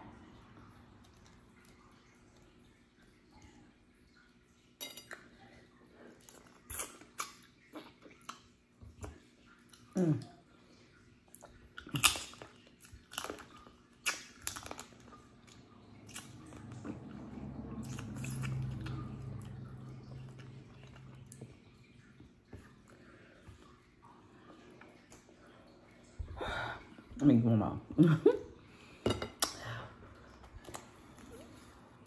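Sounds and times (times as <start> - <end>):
chewing and sucking mouth sounds: 5.1 - 26.1.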